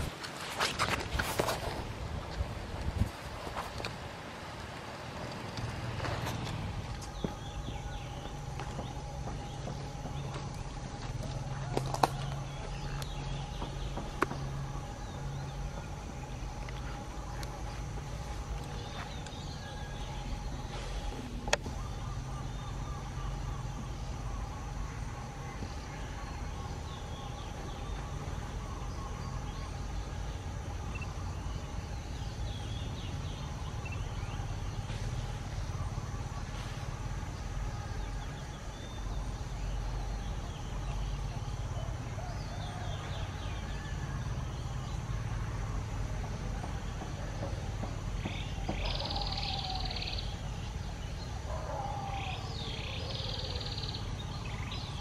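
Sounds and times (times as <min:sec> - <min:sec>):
steady low rumble: 0:00.9 - 0:42.2
high-pitched animal calls: 0:48.8 - 0:50.3.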